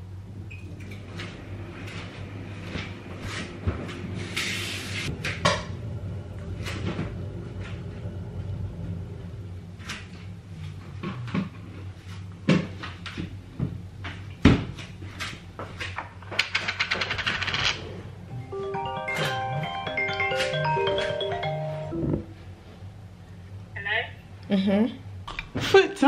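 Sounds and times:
steady low hum: 0:00.0 - 0:16.3, 0:17.2 - 0:26.0
doors opening and closing: 0:18.6 - 0:22.4.

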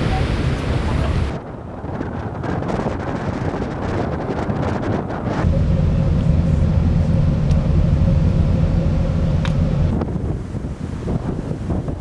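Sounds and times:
wind on microphone: 0:00.0 - 0:12.0
ferry engines droning: 0:05.4 - 0:11.3.

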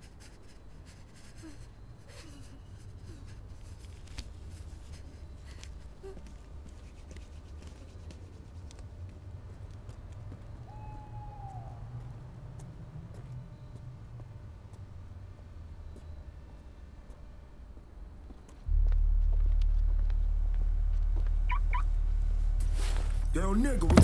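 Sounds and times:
low night ambience rumble: 0:00.0 - 0:24.0
rustling: 0:22.3 - 0:24.0.

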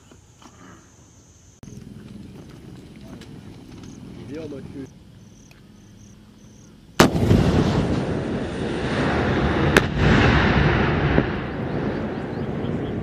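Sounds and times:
rolling rumble echoing: 0:01.6 - 0:13.0
round hitting hillside crack: 0:07.0 - 0:08.9
weapon launch blast: 0:07.0 - 0:11.9.

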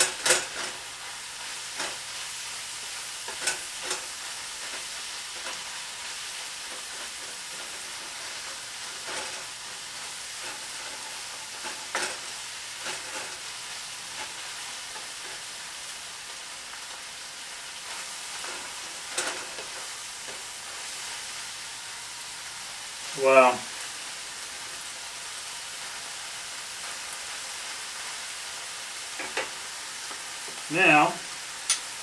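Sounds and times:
food sizzling in a frying pan: 0:00.0 - 0:32.0
spatula scraping and knocking pan: 0:03.2 - 0:05.8, 0:06.6 - 0:09.5, 0:10.3 - 0:13.4, 0:18.3 - 0:20.4, 0:29.2 - 0:30.7.

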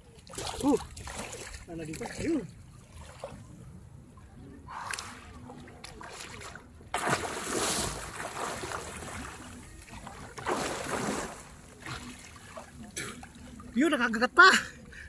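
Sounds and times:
churning water: 0:00.0 - 0:14.9
loud splash of diving: 0:06.9 - 0:09.2, 0:10.4 - 0:12.0.

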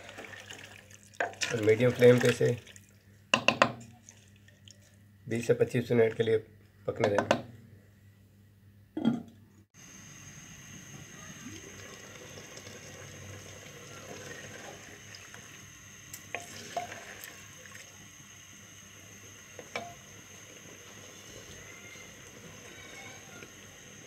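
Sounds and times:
wooden spoon knocking a pot: 0:03.3 - 0:03.9
curry sizzling in a pot: 0:09.8 - 0:24.0.

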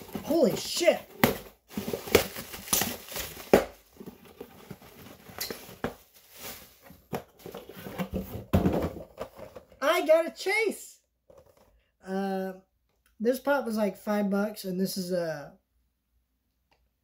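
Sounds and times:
packaging crinkling: 0:01.7 - 0:06.9.

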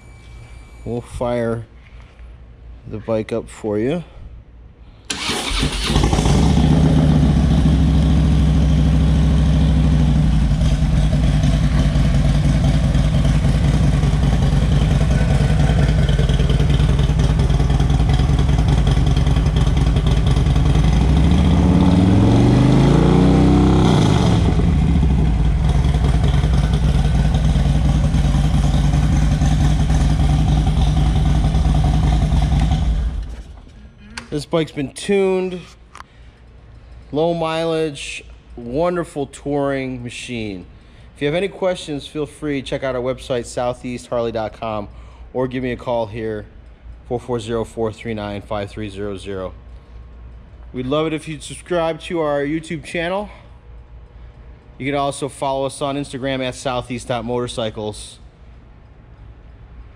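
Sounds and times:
motorcycle throttle rev: 0:05.1 - 0:33.3
motorcycle engine starting and idling: 0:05.1 - 0:34.5.

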